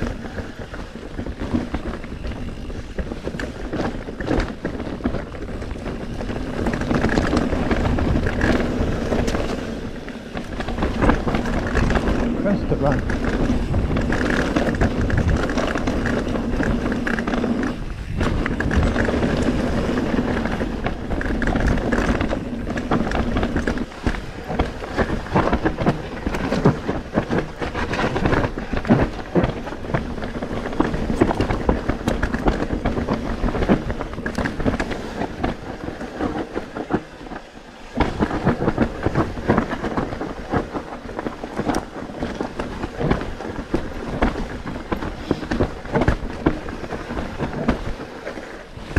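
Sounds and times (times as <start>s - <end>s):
bike frame and chain rattling: 0.0s - 48.9s
bike tyres rolling over rocks: 0.0s - 48.9s.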